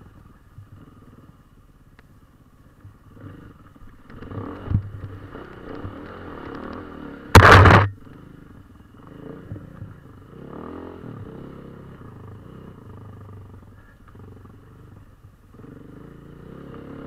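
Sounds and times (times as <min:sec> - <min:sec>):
dirt bike engine revving: 0:03.0 - 0:13.0, 0:15.5 - 0:17.0
loud burst of noise: 0:07.4 - 0:07.9.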